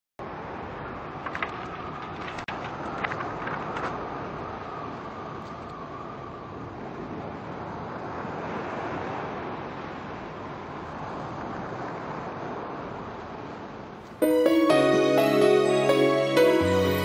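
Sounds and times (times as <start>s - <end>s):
loud music: 14.2s - 17.0s.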